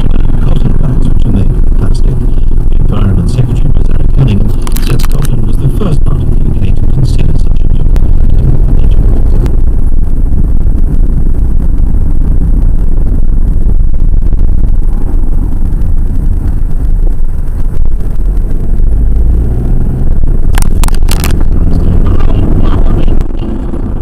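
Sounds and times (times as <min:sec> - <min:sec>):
car engine and tyres rumbling: 0:00.0 - 0:24.0.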